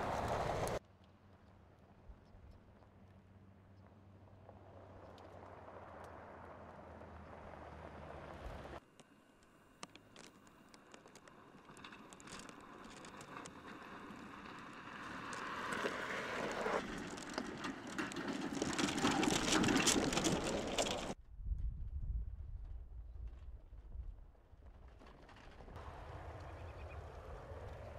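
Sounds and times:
low engine rumble: 0:00.0 - 0:00.8, 0:25.6 - 0:27.9
tyres crunching on gravel: 0:09.8 - 0:21.2.

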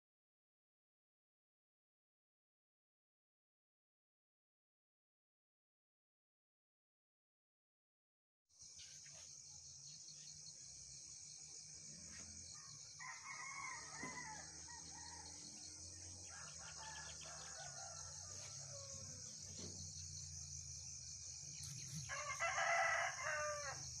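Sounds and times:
high-pitched insect buzz: 0:08.6 - 0:24.0
rooster crowing: 0:12.5 - 0:19.4, 0:22.0 - 0:24.0.

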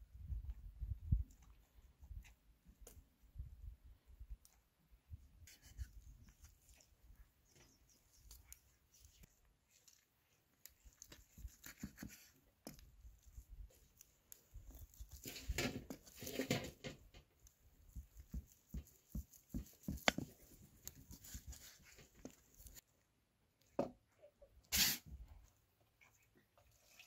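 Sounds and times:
knife scraping and tearing meat: 0:09.7 - 0:16.6.

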